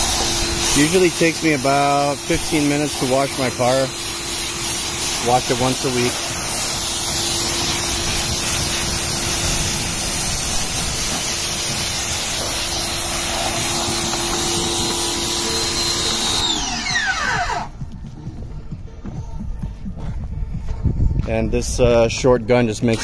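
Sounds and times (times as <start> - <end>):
pressure washer motor whining: 0.0 - 17.8
water jet hissing on pavement: 0.0 - 17.8.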